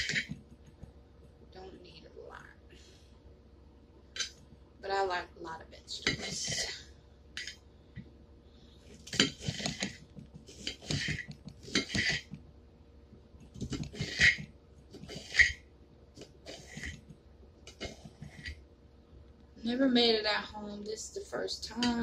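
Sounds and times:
knife slicing pepper on plate: 0:09.1 - 0:12.4, 0:13.6 - 0:15.6, 0:16.2 - 0:17.1.

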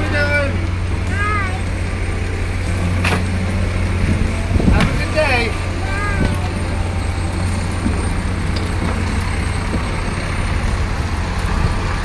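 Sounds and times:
garbage truck engine idling: 0:00.0 - 0:12.0.

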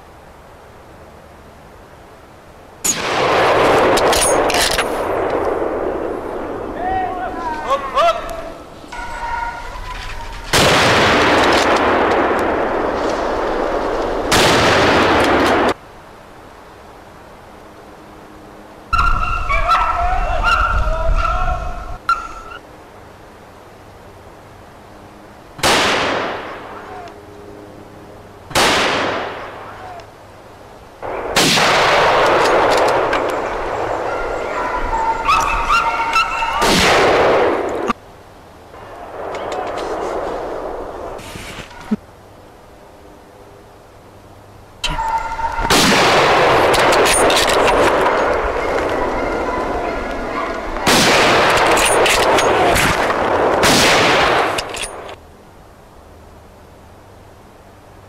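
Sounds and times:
gunshots: 0:02.8 - 0:06.0, 0:10.5 - 0:15.8, 0:25.6 - 0:26.7, 0:28.5 - 0:29.6, 0:31.0 - 0:34.2, 0:36.5 - 0:37.7, 0:45.7 - 0:49.5, 0:50.8 - 0:55.1
rifle shots with rolling echo: 0:02.8 - 0:06.8, 0:10.5 - 0:15.8, 0:25.6 - 0:26.8, 0:28.5 - 0:29.7, 0:31.0 - 0:34.6, 0:36.4 - 0:37.9, 0:45.6 - 0:55.1
dogs yelping: 0:08.9 - 0:10.5, 0:18.9 - 0:22.6, 0:32.9 - 0:37.0, 0:44.8 - 0:45.8, 0:46.6 - 0:52.8.

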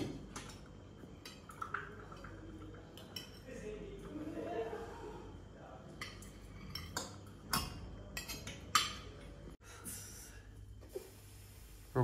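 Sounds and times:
faint room noise: 0:00.0 - 0:12.0
cutlery clinking against plates: 0:05.9 - 0:09.4.

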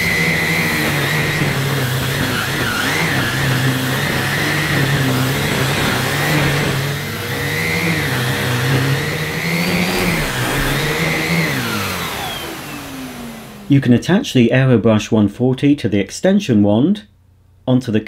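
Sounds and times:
turbo brush on a rug: 0:00.0 - 0:12.9
vacuum cleaner motor running: 0:00.0 - 0:13.9.

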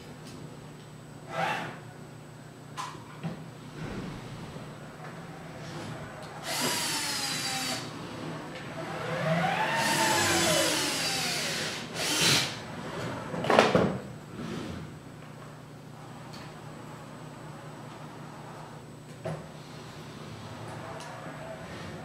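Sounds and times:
small electric motors whining: 0:06.4 - 0:08.0, 0:08.8 - 0:12.6.

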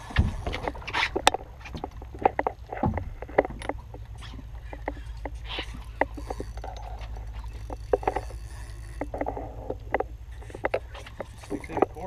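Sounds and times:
wind rumble on microphone: 0:00.0 - 0:06.4
clicks and knocks against hull: 0:00.0 - 0:12.0.

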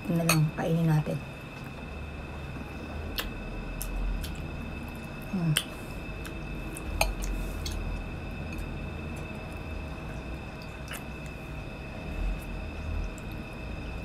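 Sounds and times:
faint high whine: 0:00.0 - 0:14.0
low hum: 0:00.0 - 0:14.0
wet chewing clicks and smacks: 0:03.1 - 0:05.0, 0:10.6 - 0:11.4.

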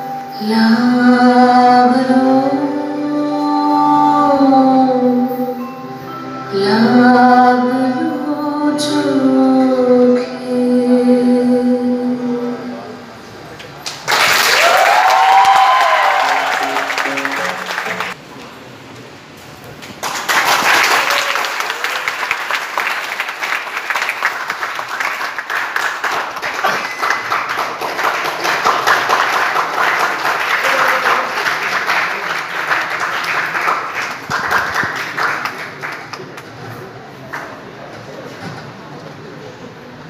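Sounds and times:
audience applauding: 0:13.8 - 0:18.2, 0:20.0 - 0:36.7.

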